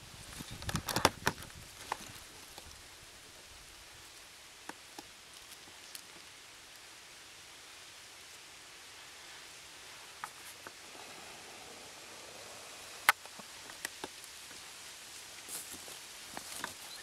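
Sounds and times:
dry leaves crunching: 11.9s - 17.0s.

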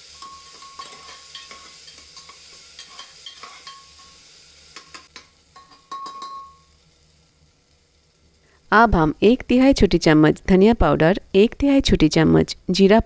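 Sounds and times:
frying sizzle: 0.0s - 12.4s
metal spatula scraping pot: 0.2s - 4.0s.

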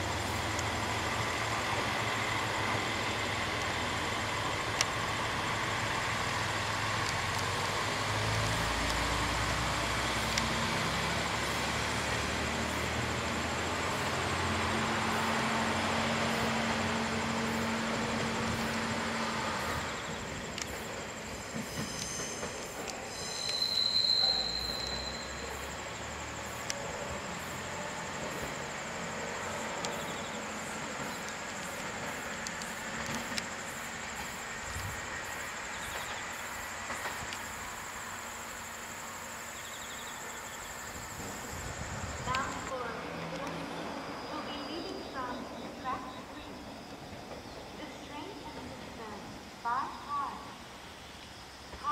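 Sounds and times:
train rumbling: 0.0s - 51.0s
diesel railcar engine hum: 0.0s - 51.9s
train wheels squealing: 19.4s - 25.9s
wheels clicking over track: 26.4s - 38.6s.

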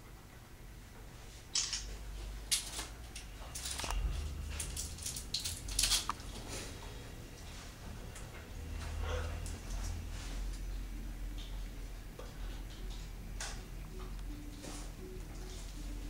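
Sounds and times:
low rumble: 3.3s - 9.0s.

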